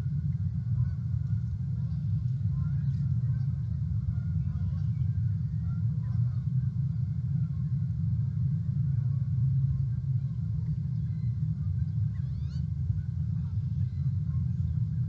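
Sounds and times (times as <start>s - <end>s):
low outdoor rumble: 0.0s - 15.0s
faint bird calls: 0.8s - 6.7s, 10.2s - 15.0s.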